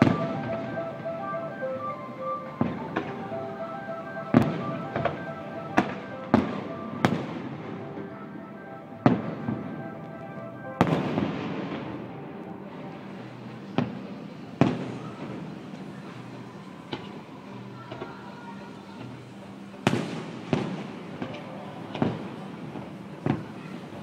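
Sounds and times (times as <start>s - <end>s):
fireworks bursting with echo: 0.0s - 15.9s, 19.8s - 24.0s.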